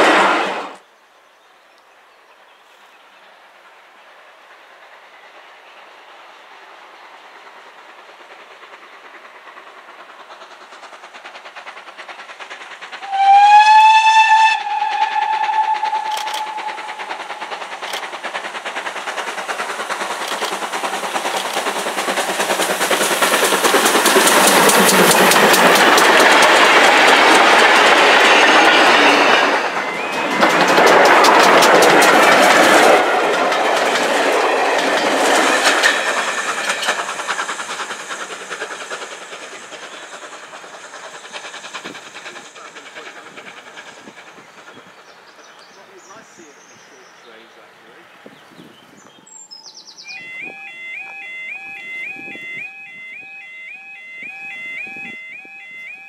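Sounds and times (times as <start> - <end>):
steam locomotive exhaust: 2.7 - 56.0
wheels clattering on rails: 6.4 - 47.4
steam whistle blast: 13.0 - 17.2, 50.1 - 56.0.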